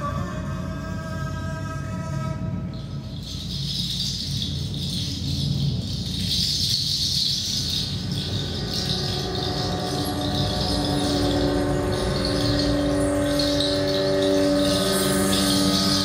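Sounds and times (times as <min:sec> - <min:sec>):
low rumble: 0:00.0 - 0:16.0
rattle shaken: 0:02.5 - 0:16.0
held instrumental tone: 0:07.7 - 0:16.0.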